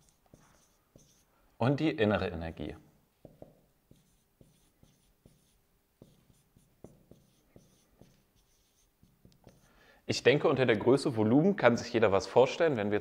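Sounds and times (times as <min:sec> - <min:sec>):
marker pen squeaking on whiteboard: 0:00.0 - 0:01.3, 0:03.3 - 0:09.7.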